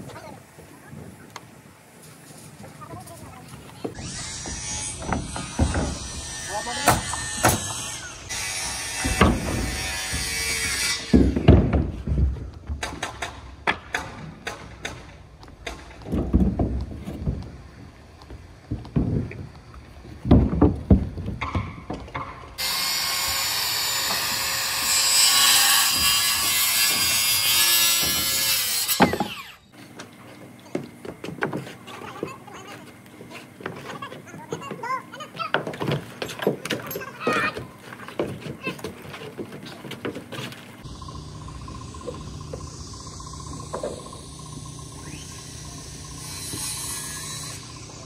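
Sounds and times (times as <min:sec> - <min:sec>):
circular saw cutting lumber: 0:03.9 - 0:11.7, 0:22.2 - 0:29.7, 0:40.8 - 0:48.0.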